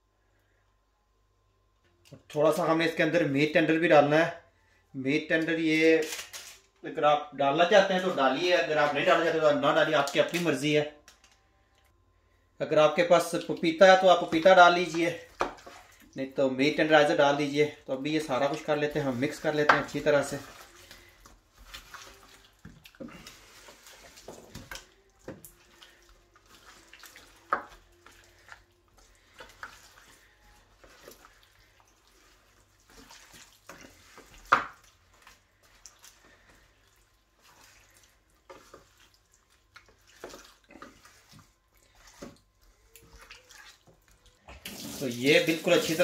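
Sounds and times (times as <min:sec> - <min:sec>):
hands squelching wet marinade: 0:12.9 - 0:46.0.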